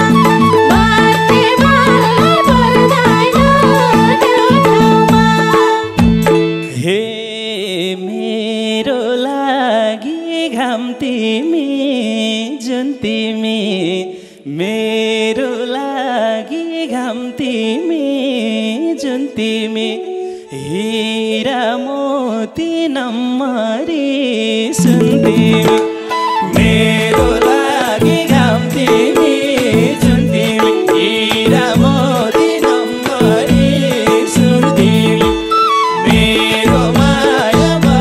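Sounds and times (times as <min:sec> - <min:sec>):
bowed string instrument: 0:00.0 - 0:07.0, 0:23.6 - 0:38.0
man singing into a microphone: 0:00.0 - 0:38.0.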